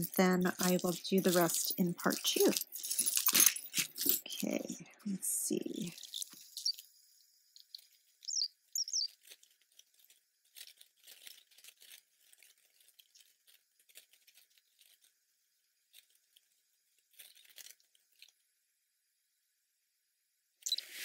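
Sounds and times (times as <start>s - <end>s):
metal chains and beads clinking: 0.0s - 5.0s, 5.7s - 6.8s.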